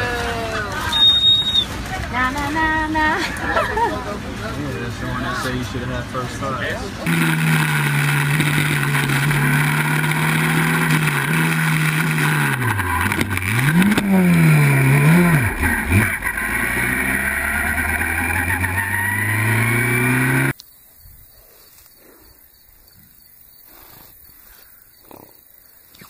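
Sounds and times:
race car engine at high revs: 7.0s - 20.6s.

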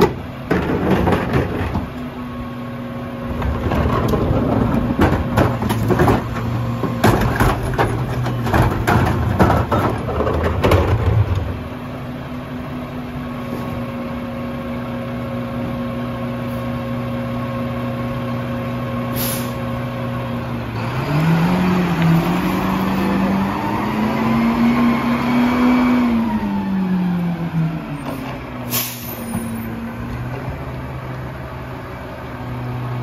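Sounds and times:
diesel truck engine: 0.0s - 33.0s
cart clattering into hopper: 3.5s - 11.6s
air brake hiss: 19.1s - 19.7s, 28.7s - 29.5s.

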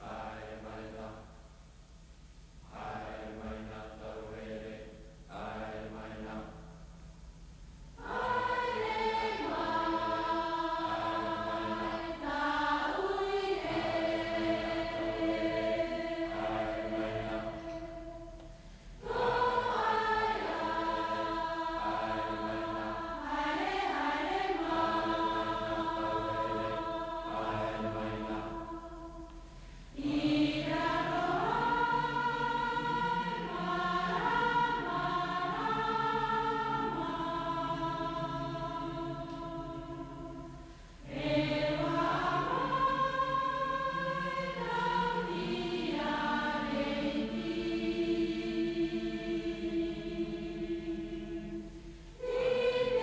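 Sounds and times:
choir singing held chords: 0.0s - 1.8s, 2.6s - 7.2s, 7.9s - 53.0s.

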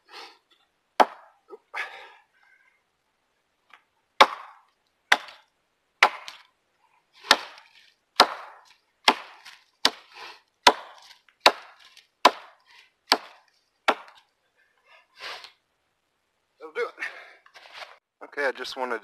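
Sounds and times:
axe chopping into tree trunk: 1.0s - 1.3s, 4.2s - 5.4s, 6.0s - 6.4s, 7.2s - 14.2s.

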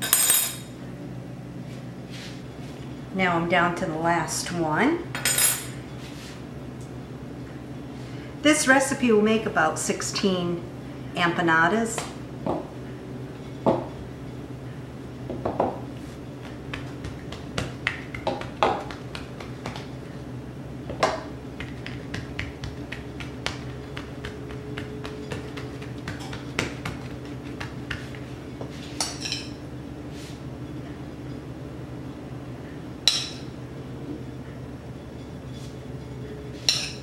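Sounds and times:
steady low hum: 0.0s - 37.0s
rolling pin knocking on countertop: 13.6s - 13.9s, 15.3s - 15.8s, 16.4s - 19.9s, 20.9s - 28.2s.

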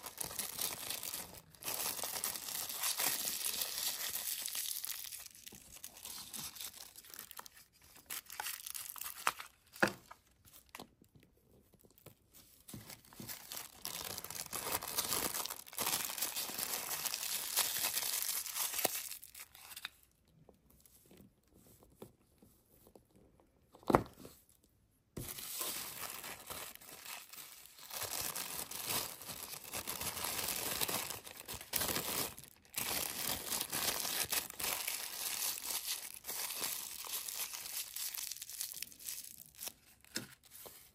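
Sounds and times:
tissue paper crinkling: 0.0s - 9.7s, 12.6s - 19.9s, 25.3s - 40.9s.

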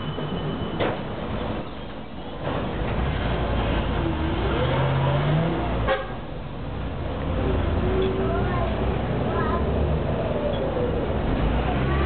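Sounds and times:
tram rumbling on rails: 0.0s - 12.0s.

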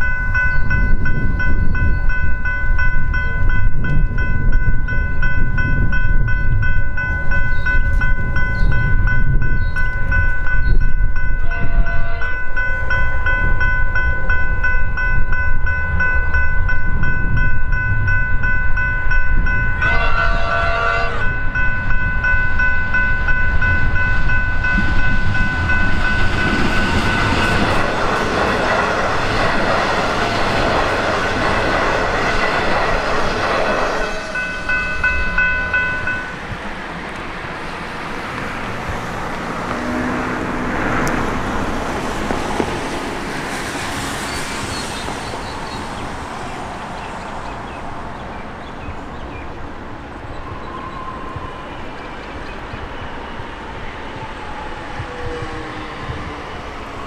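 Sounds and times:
train horn blasts: 11.4s - 12.9s, 19.8s - 21.7s, 33.9s - 35.0s
train wheels hissing: 42.0s - 47.6s.

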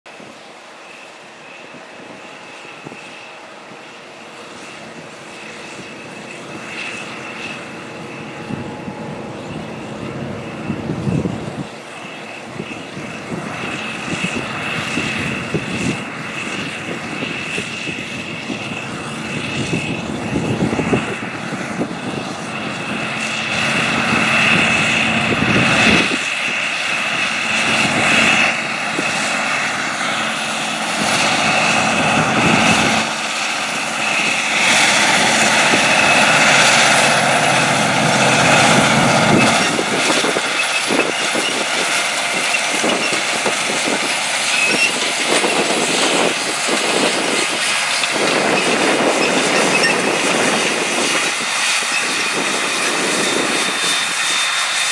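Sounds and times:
high whine: 0.2s - 54.3s
tractor engine under load: 17.8s - 54.9s.

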